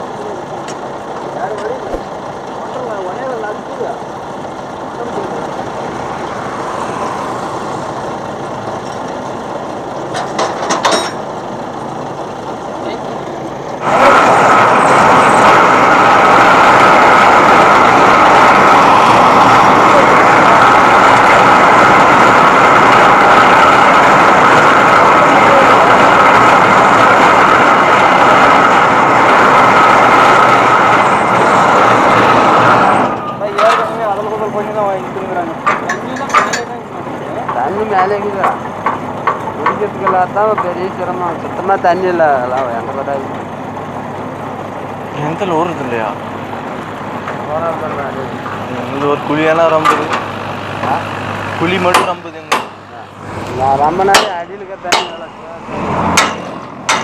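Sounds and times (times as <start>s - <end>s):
engine running: 0.0s - 57.0s
steady high whine: 0.0s - 57.0s
sharp knocks: 38.4s - 40.8s, 51.9s - 52.8s, 54.0s - 55.4s, 56.0s - 57.0s.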